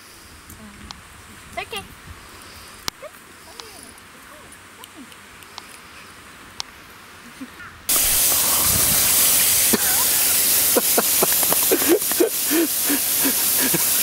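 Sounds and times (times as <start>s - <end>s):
loud steady hiss: 0.0s - 7.2s, 7.9s - 14.0s
puppy splashing in water and compost: 7.9s - 14.0s.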